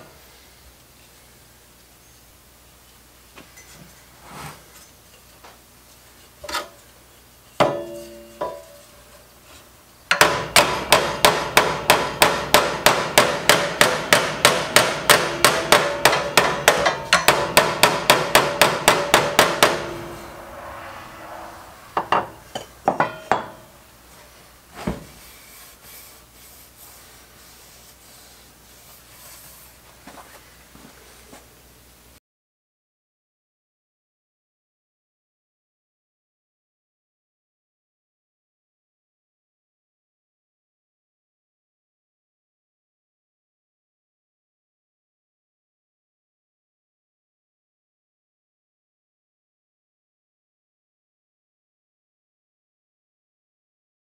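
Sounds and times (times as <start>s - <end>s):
hammer striking metal: 7.6s - 9.0s, 10.1s - 21.3s, 21.9s - 23.8s.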